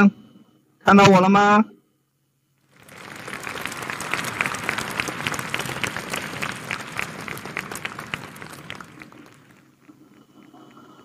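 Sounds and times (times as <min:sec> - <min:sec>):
audience clapping: 0:02.7 - 0:10.8.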